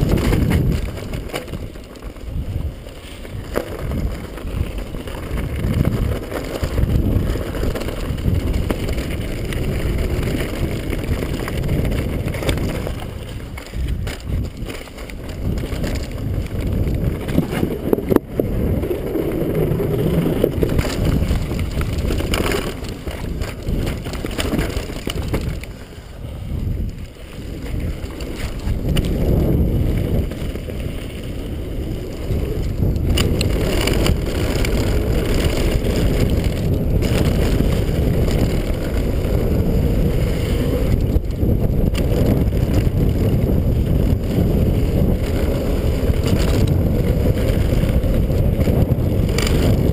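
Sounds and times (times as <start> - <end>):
bike knocking over bumps: 0.0 - 2.2, 19.7 - 25.8
bike tyres rolling on gravel: 0.0 - 49.9
wind rushing over microphone: 0.0 - 49.9.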